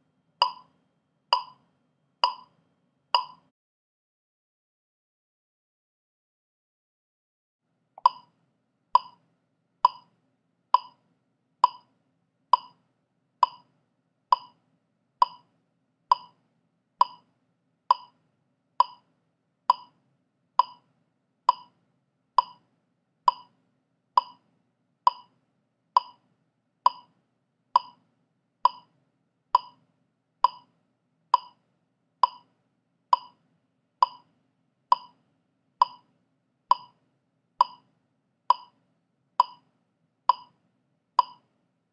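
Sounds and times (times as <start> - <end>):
metronome clicking: 0.4 - 0.7, 1.4 - 1.6, 2.2 - 2.5, 3.2 - 3.4, 8.0 - 8.3, 9.0 - 9.2, 9.9 - 10.1, 11.6 - 11.8, 13.4 - 13.6, 16.1 - 16.3, 17.0 - 17.2, 17.9 - 18.1, 18.8 - 19.0, 19.7 - 19.9, 21.5 - 21.7, 22.4 - 22.6, 24.2 - 24.4, 25.1 - 25.3, 26.9 - 27.1, 27.8 - 28.0, 28.7 - 28.9, 29.6 - 29.8, 30.4 - 30.6, 31.4 - 31.6, 32.2 - 32.4, 33.2 - 33.4, 34.0 - 34.2, 34.9 - 35.2, 35.8 - 36.0, 36.7 - 36.9, 37.6 - 37.8, 38.5 - 38.7, 39.4 - 39.6, 40.3 - 40.5, 41.2 - 41.4.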